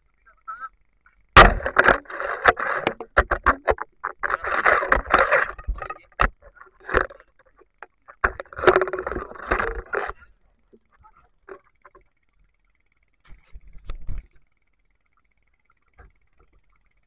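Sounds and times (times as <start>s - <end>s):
sharp knocks: 1.4s - 7.2s.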